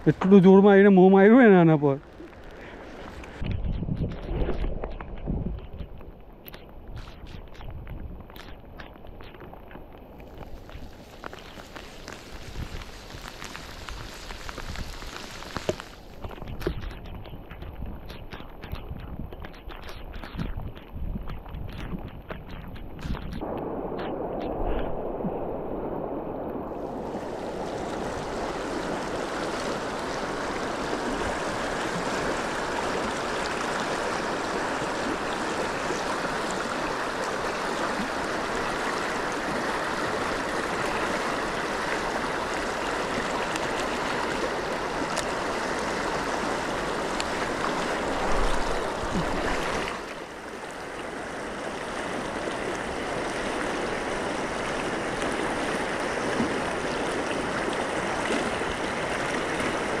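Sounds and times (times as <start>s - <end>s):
river water rushing: 23.4s - 60.0s.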